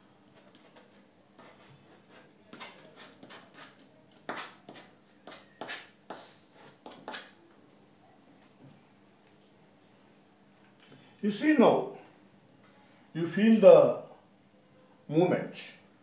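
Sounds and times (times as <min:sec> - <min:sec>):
palette knife scraping canvas: 0:00.4 - 0:07.3.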